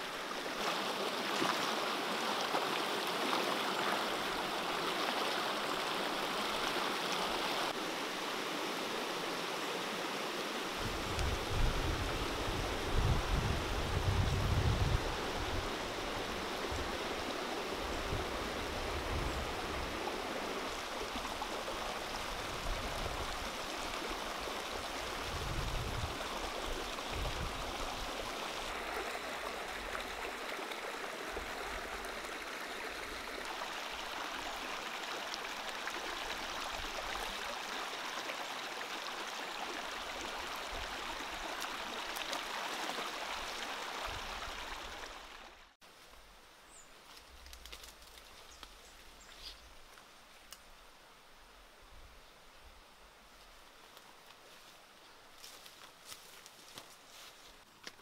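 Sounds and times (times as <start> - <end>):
stream rushing over stones: 0.0 - 45.8.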